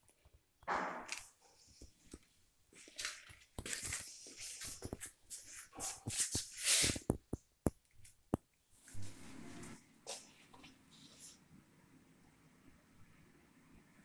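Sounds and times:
handling noise rustling and scraping: 0.0 - 8.2.

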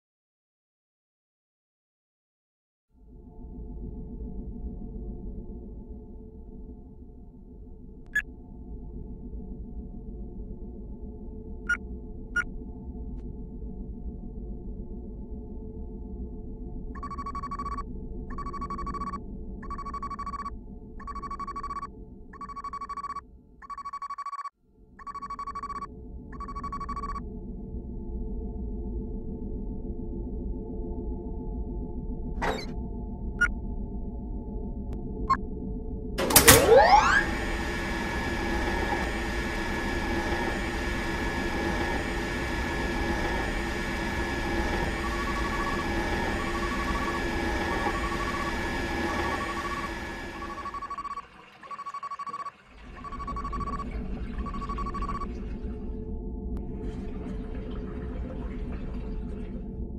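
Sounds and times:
steady low hum: 3.1 - 22.5, 25.2 - 51.2
electronic ringing beeps: 17.0 - 27.2, 43.1 - 55.3
electric water pump whining: 36.2 - 56.2.

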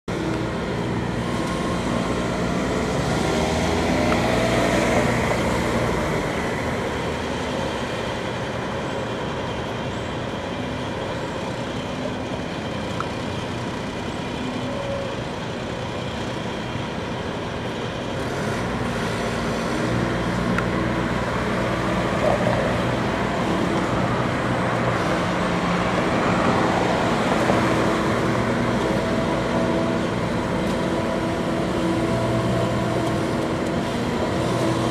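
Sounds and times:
city traffic: 0.0 - 34.9.

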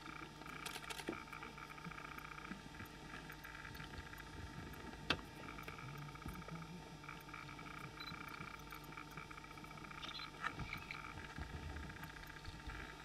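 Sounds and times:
steady low hum: 0.0 - 13.0
pulsing high chirping: 9.6 - 11.1.

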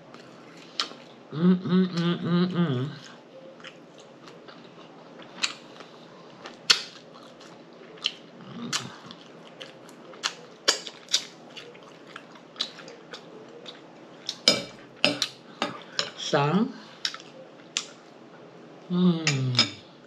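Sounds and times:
chewing and lip smacking: 3.0 - 15.4, 17.0 - 18.0.

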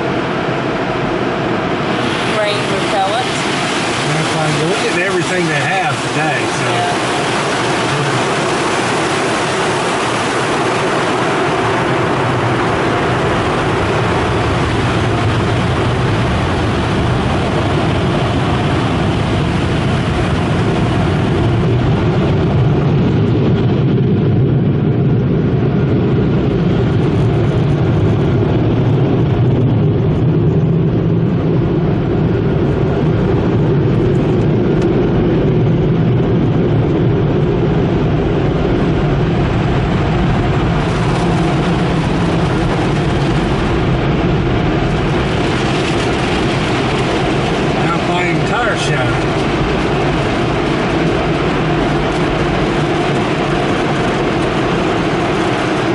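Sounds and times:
car wash machinery rumble: 0.0 - 55.9
water spraying on windshield: 1.9 - 11.3, 44.9 - 53.6.

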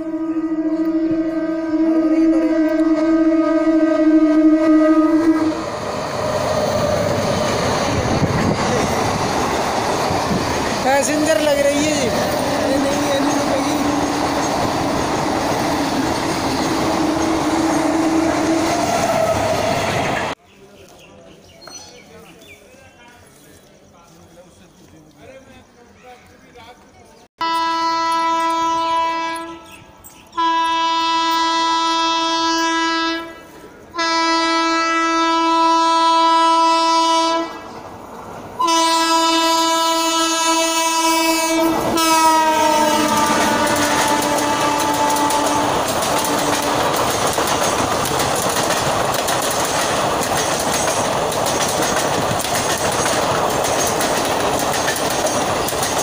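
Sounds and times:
train horn blasts: 0.0 - 5.7, 16.5 - 19.8, 27.4 - 29.8, 30.4 - 37.7, 38.6 - 46.9
train wheels rumbling on rails: 1.3 - 20.4, 36.2 - 56.0.

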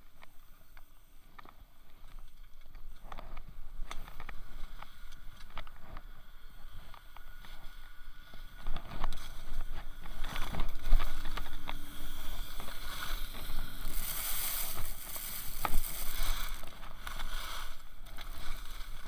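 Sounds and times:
skis scraping over hard snow: 10.1 - 19.0.

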